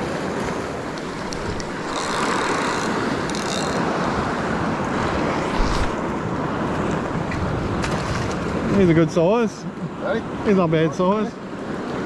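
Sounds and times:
wind buffeting microphone: 0:00.0 - 0:09.0
surf washing against rocks: 0:00.0 - 0:12.0.

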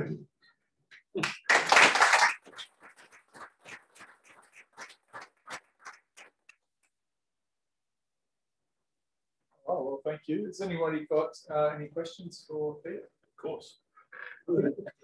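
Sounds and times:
audience applause: 0:01.2 - 0:06.5.

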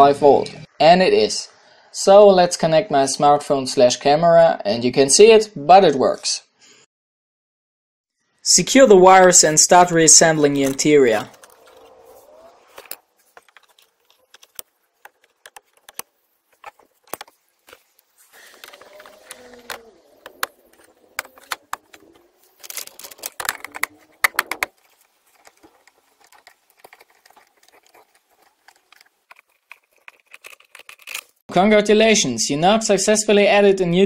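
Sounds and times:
plastic trim clicks and rattles: 0:18.5 - 0:31.3.

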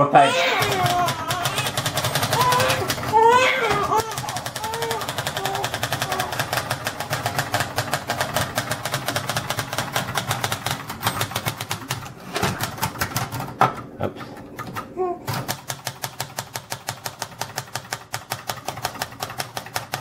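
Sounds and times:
baby crying: 0:00.0 - 0:06.5, 0:14.9 - 0:15.3
typewriter key clatter: 0:00.6 - 0:12.0, 0:15.5 - 0:20.0.

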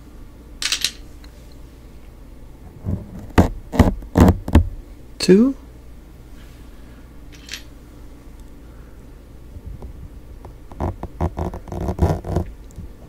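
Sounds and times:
fingers rustling foam microphone: 0:10.7 - 0:12.5.

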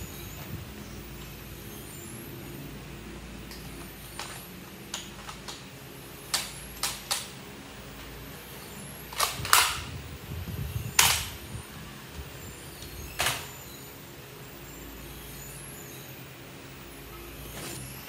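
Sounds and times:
plastic toy blaster clicks and clacks: 0:03.5 - 0:05.6, 0:06.3 - 0:07.4, 0:09.1 - 0:09.9, 0:11.0 - 0:11.3.

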